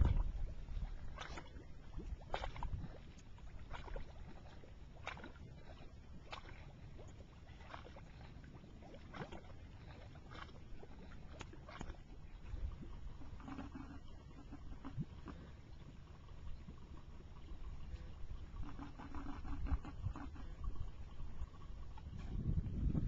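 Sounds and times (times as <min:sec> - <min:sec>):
mud pot bubbles plopping: 0:00.0 - 0:15.6, 0:18.5 - 0:20.7.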